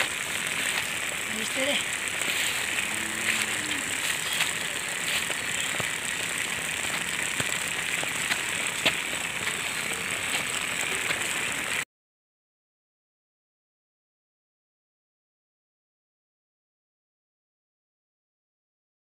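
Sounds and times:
toy car motor on asphalt: 0.0 - 11.8.

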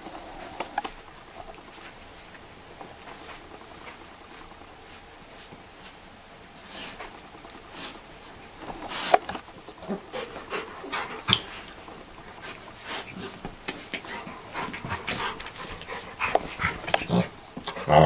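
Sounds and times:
dogs breathing and mouthing: 6.6 - 17.9.

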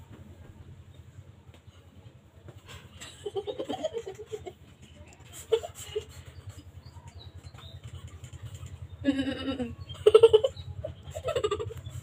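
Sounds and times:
young people giggling: 2.9 - 7.0, 7.6 - 12.0.

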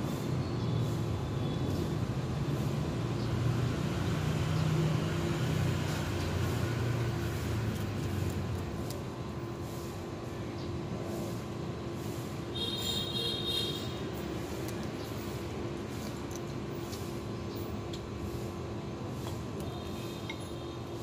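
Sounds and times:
low mechanical hum: 0.0 - 21.0
kittens chewing shells: 14.6 - 17.0.

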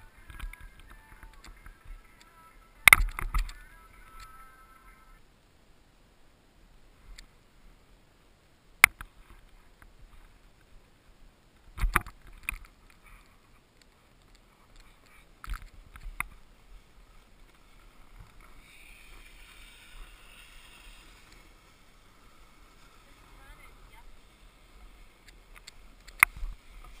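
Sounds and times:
snowboard hissing over snow: 16.5 - 27.0.

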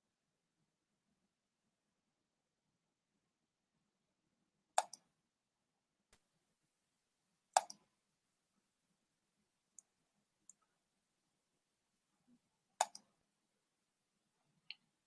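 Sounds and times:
mouse double clicks: 4.8 - 5.0, 7.6 - 7.8, 12.8 - 13.1.

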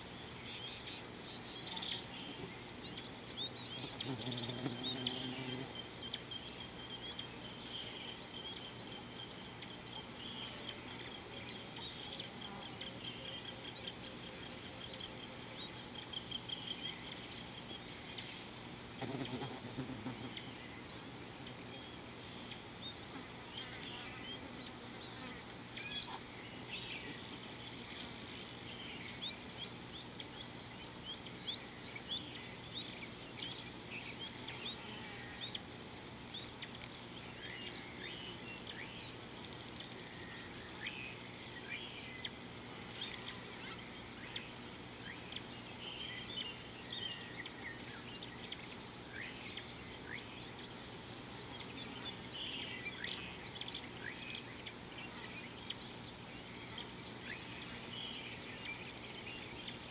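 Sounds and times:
high-pitched insect buzz: 0.4 - 35.7, 39.8 - 50.7.

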